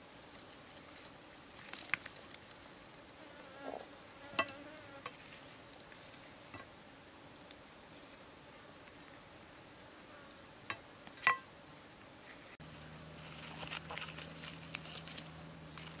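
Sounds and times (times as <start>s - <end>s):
faint insect buzz: 3.2s - 5.4s.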